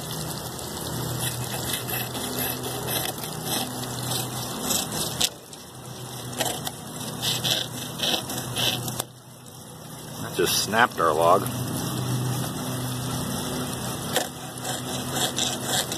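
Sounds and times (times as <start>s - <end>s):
water splashing on water wheel: 0.0s - 15.9s
hacksaw blade rasping through wood: 1.2s - 5.4s, 6.4s - 9.0s, 14.0s - 15.9s.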